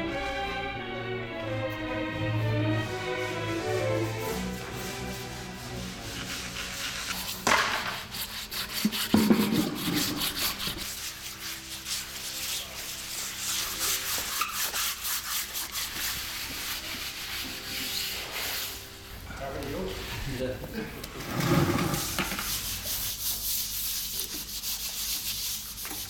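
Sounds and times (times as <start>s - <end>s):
scrub pads rubbing wet tile floor: 2.6s - 26.0s
knocks and scrapes: 3.8s - 10.9s, 20.1s - 23.1s.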